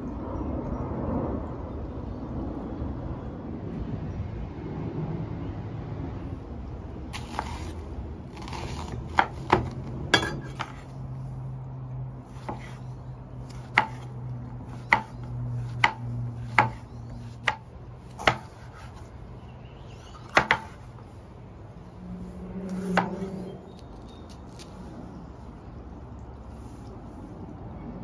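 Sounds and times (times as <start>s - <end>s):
knife chopping on cutting board: 8.4s - 10.9s, 12.4s - 12.8s, 13.5s - 14.1s, 14.7s - 19.0s, 20.1s - 20.8s.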